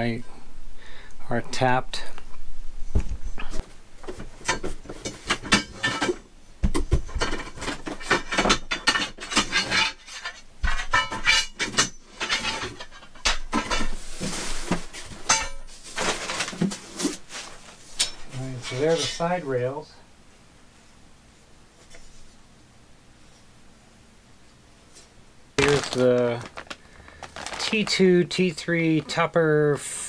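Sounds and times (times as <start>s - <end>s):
metal bars clattering together: 7.1s - 14.0s, 15.2s - 15.7s
cardboard scraping: 13.8s - 19.3s, 25.6s - 28.1s.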